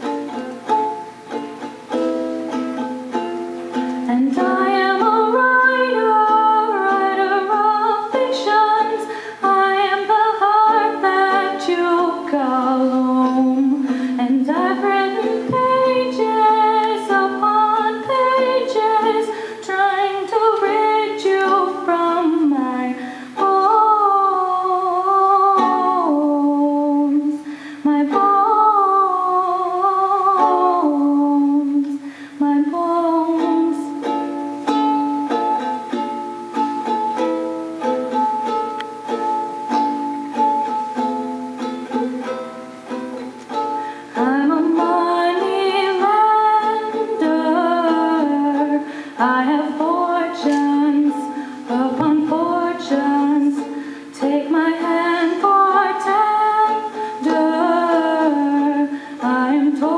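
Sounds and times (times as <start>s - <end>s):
strummed small string instrument: 0.0s - 59.9s
woman singing into microphone: 4.0s - 34.2s, 43.8s - 59.9s.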